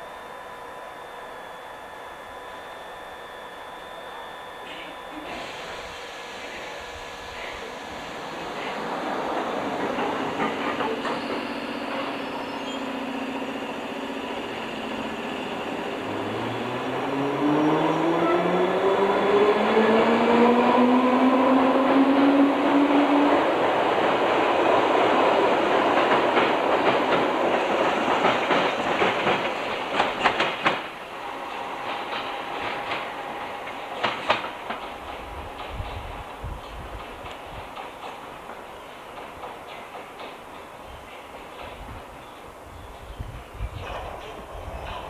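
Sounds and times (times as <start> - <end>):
train motor whine: 0.0 - 37.2
train wheels clattering over rails: 7.4 - 18.3, 21.8 - 45.0.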